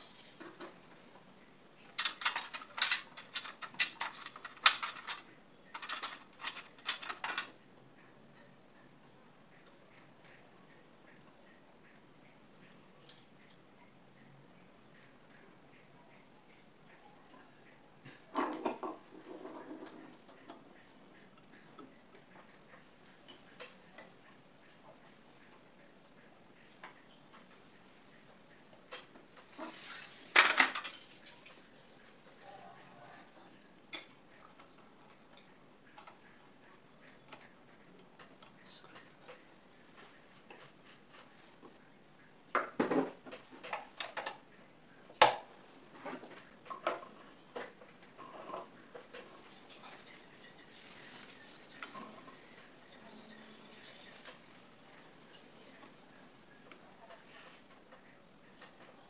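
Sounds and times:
light clicks of metal parts: 0:00.0 - 0:18.4
soft rustle: 0:47.2 - 0:58.1.

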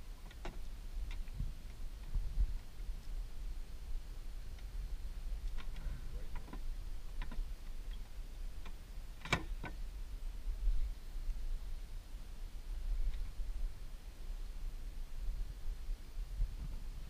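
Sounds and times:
steady low rumble: 0:00.0 - 0:17.0
light clicks and knocks: 0:05.4 - 0:09.8.

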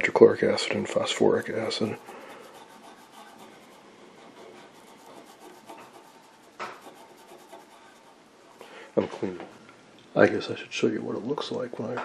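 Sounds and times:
cotton swab rubbing metal: 0:00.6 - 0:08.2.

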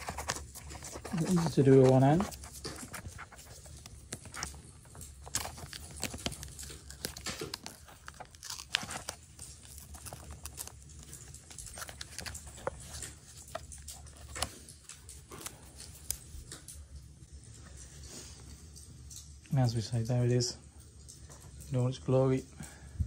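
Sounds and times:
plastic packaging crinkling and tearing: 0:00.0 - 0:17.0.

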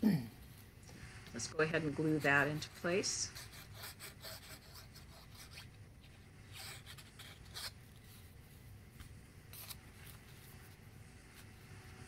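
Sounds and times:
cardstock rustling and scraping: 0:09.0 - 0:10.8.

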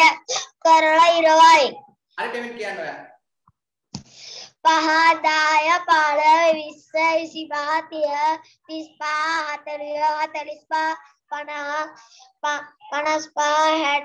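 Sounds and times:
boy chanting in sing-song voice: 0:04.6 - 0:14.0.

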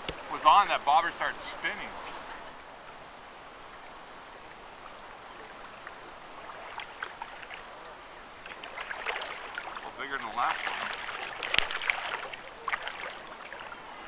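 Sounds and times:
shallow river water: 0:00.0 - 0:14.0
water splashing: 0:03.7 - 0:14.0.

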